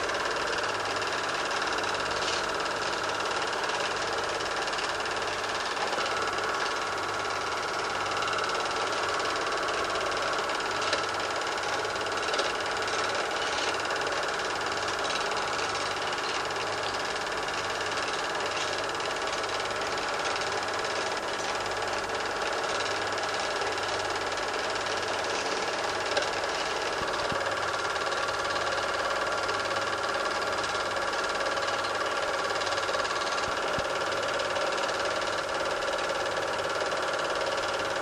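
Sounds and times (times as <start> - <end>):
film projector whirring: 0.0 - 38.0
small clicks: 8.1 - 21.8, 22.5 - 28.8.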